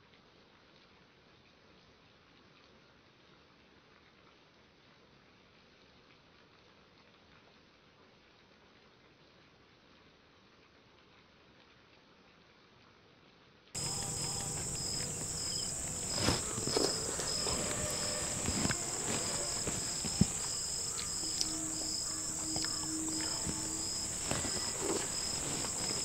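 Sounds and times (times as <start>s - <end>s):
cricket chirps: 13.8s - 26.0s
faint low hum: 13.8s - 26.0s
insects droning: 13.8s - 26.0s.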